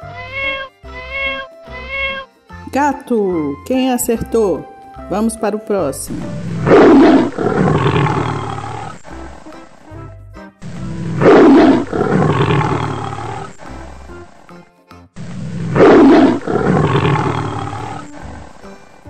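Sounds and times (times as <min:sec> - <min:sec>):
background music: 0:00.0 - 0:19.0
tiger roaring: 0:06.2 - 0:09.5, 0:10.8 - 0:14.1, 0:15.2 - 0:18.6.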